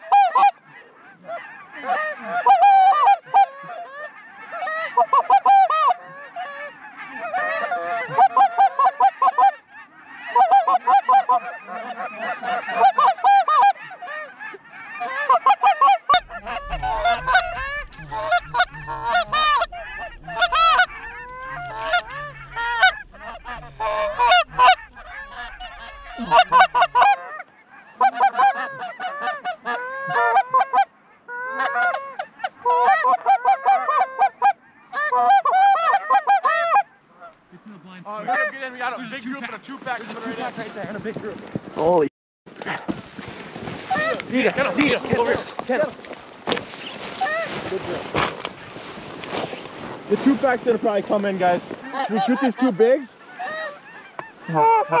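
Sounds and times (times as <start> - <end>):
geese honking and cackling: 0.0 - 37.4, 47.2 - 47.5, 51.2 - 55.0
low rumble: 16.2 - 27.0.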